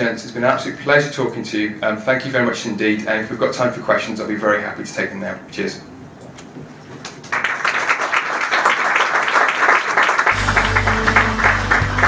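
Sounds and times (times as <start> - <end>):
audience applauding: 7.0 - 12.0
music with low bass notes: 10.4 - 12.0.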